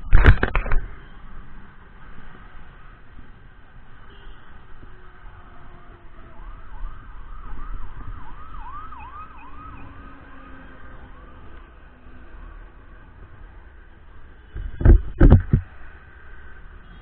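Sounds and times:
low rumble of road traffic: 0.0 - 17.0
siren wailing: 5.2 - 11.9.

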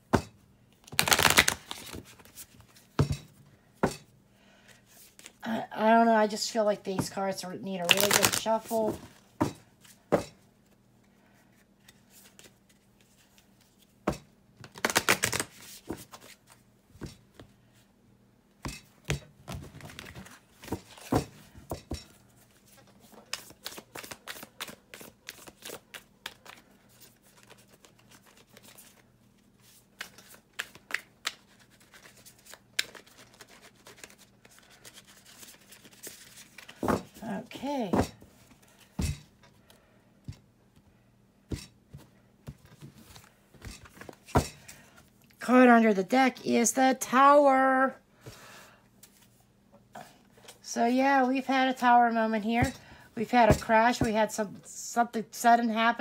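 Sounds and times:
cards being shuffled: 0.8 - 2.8, 7.8 - 9.1, 14.6 - 16.6, 22.6 - 29.0, 29.6 - 37.2.

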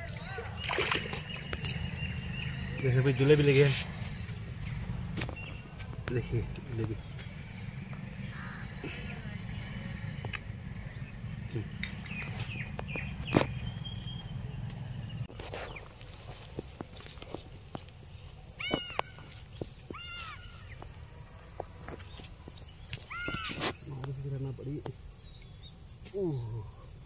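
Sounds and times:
crows cawing: 8.3 - 8.8, 18.4 - 22.0, 23.0 - 23.7
high-pitched insect drone: 15.3 - 27.0.

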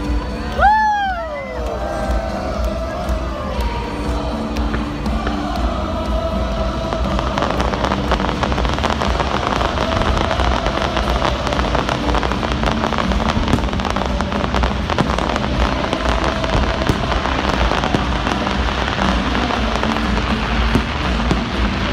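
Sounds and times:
fireworks crackling: 0.0 - 21.9
sharp firework pops: 7.0 - 21.7.

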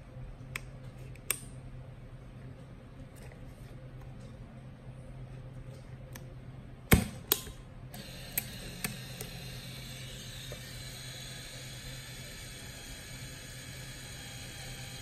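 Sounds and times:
camera motor whirring: 8.0 - 15.0.

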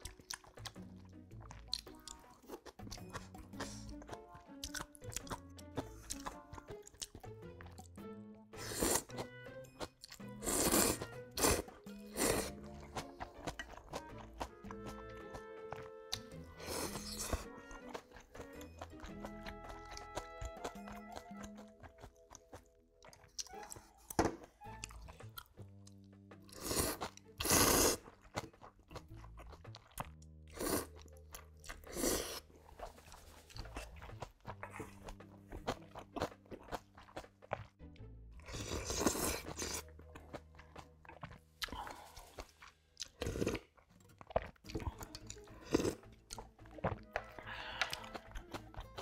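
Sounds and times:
chewing and crunching: 0.0 - 8.0, 8.6 - 49.0
noodle slurping: 8.6 - 9.2, 10.3 - 13.9, 16.1 - 18.4, 26.5 - 28.4, 38.5 - 39.9.

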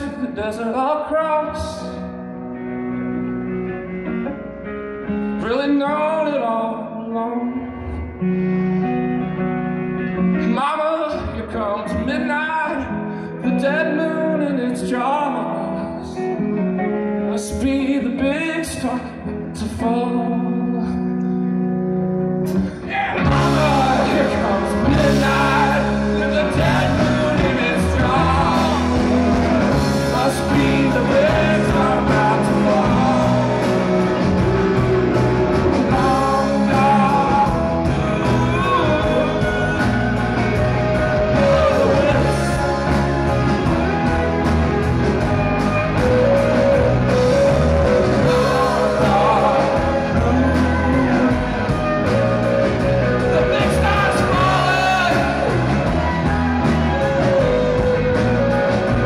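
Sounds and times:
man singing: 0.0 - 2.2, 5.3 - 8.3, 10.3 - 21.3, 22.6 - 59.0
electric guitar: 0.0 - 59.0
drums and cymbals: 22.5 - 59.0.

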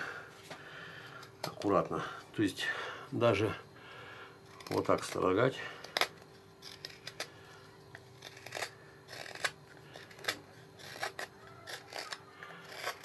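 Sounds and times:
knife shaving wood: 4.4 - 13.0.

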